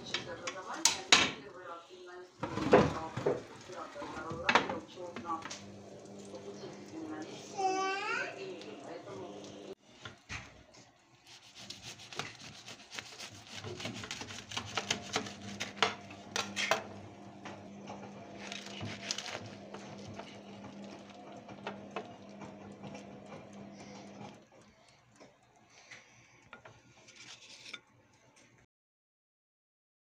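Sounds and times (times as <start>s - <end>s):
bread knife sawing crisp bread: 11.2s - 16.8s, 18.4s - 20.6s.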